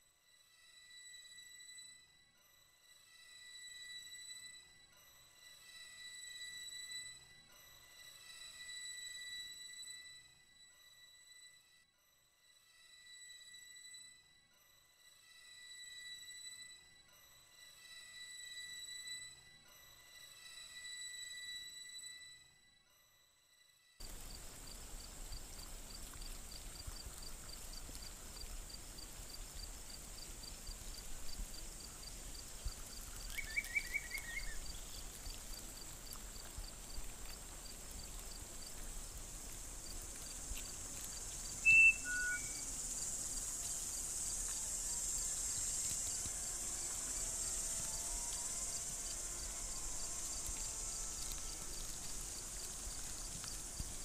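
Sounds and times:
cricket chirping: 24.0 - 54.0
insects hissing: 24.0 - 54.0
bird trill: 33.3 - 35.0, 41.6 - 42.7.

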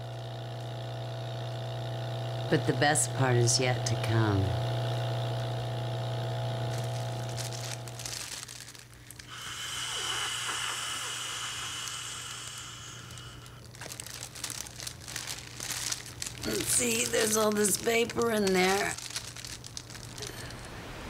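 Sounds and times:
plastic bag crinkling: 6.6 - 10.1, 12.9 - 20.7
air hissing through valve: 9.3 - 13.6.

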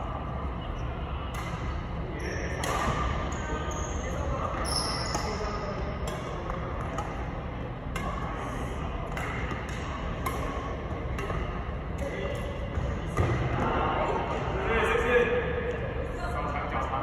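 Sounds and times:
low background hum: 0.0 - 17.0
rackets hitting shuttlecock: 1.3 - 1.9, 2.5 - 3.3, 5.1 - 13.7.

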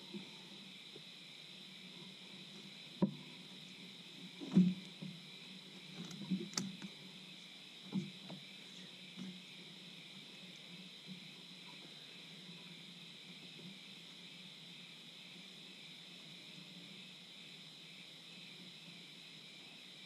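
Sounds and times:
night insects chirring: 0.0 - 20.0
knocks and bumps in a boat: 4.4 - 5.2, 7.9 - 8.5.

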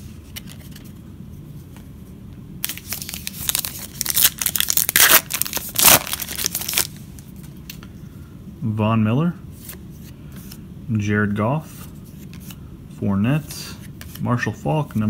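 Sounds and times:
wrapper tearing and crinkling: 2.6 - 7.0.

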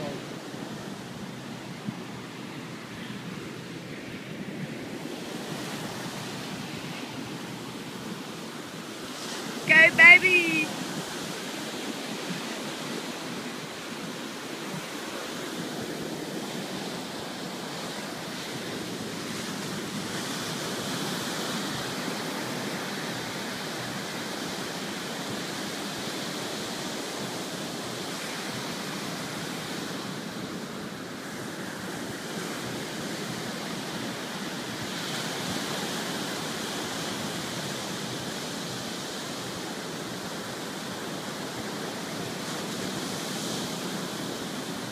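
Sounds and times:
ocean surf breaking: 0.0 - 23.7.

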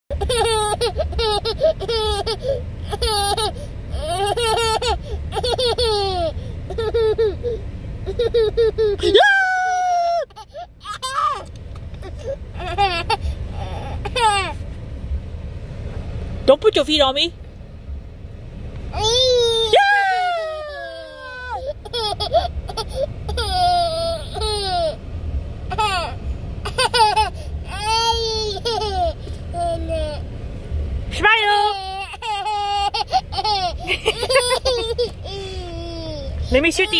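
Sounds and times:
toddler giggling: 0.1 - 9.2, 20.7 - 25.0, 25.7 - 30.0, 32.0 - 36.9
steady low rumble: 0.1 - 36.9.

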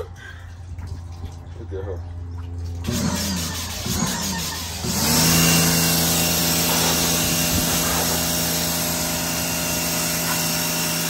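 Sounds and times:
pressure washer motor hum: 0.0 - 11.0
water jet hissing: 2.8 - 11.0.

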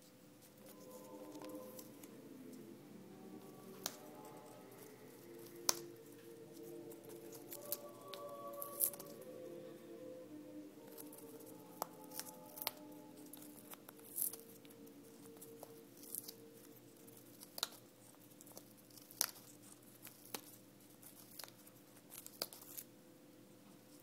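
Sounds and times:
parrot crunching chew toy: 15.2 - 22.9.

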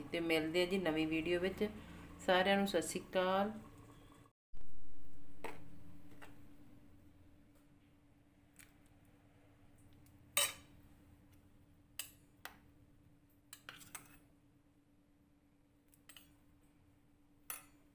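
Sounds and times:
faint steady hum: 0.0 - 17.9.

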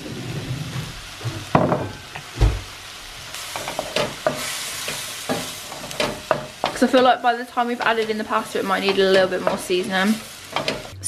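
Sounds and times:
food sizzling in frying pan: 0.0 - 11.0
wooden spoon stirring and knocking: 7.7 - 11.0.

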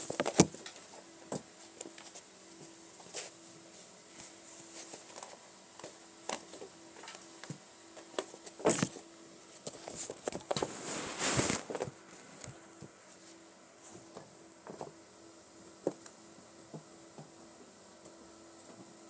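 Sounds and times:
kittens' paws pattering on carpet: 9.6 - 14.2
rustling scuffles: 9.7 - 14.1.

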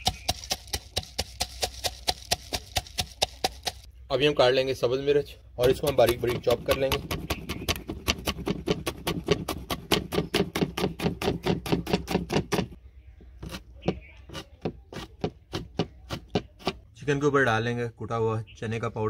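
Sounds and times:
knife chopping on cutting board: 5.6 - 12.8.

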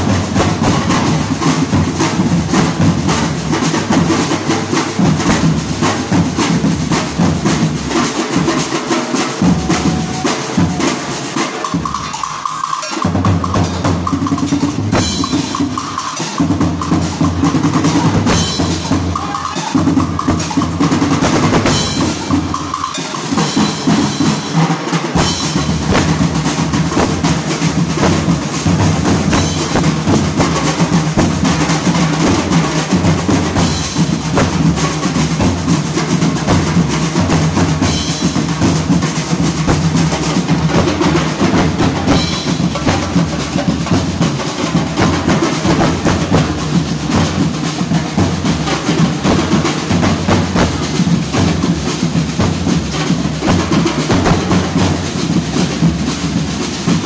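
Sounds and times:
bass drums: 0.0 - 8.5, 9.4 - 11.0, 25.2 - 57.0
small drums: 0.0 - 57.0
snare drums: 0.0 - 57.0
hand cymbal: 8.3 - 51.7.

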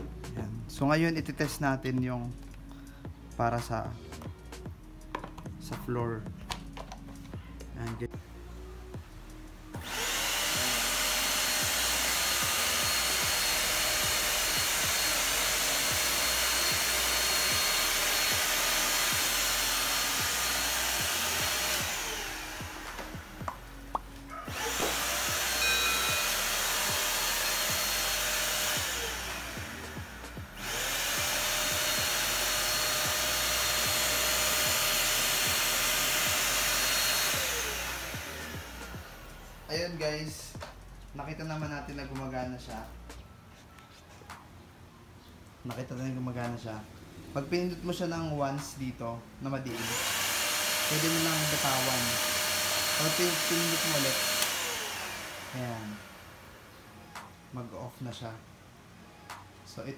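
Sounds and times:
stick vacuum cleaner running: 9.8 - 23.6, 24.3 - 39.8, 49.7 - 56.7.

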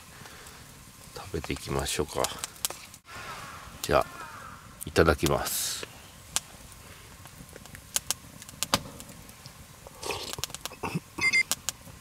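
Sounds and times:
rustle: 0.0 - 12.0.

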